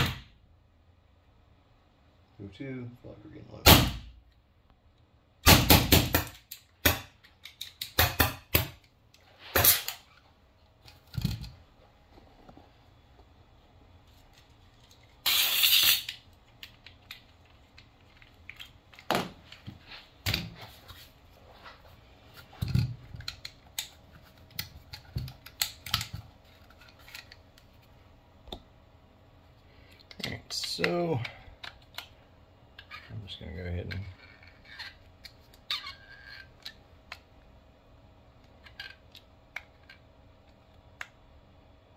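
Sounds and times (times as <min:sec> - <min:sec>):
short air hiss: 0:15.2 - 0:16.1.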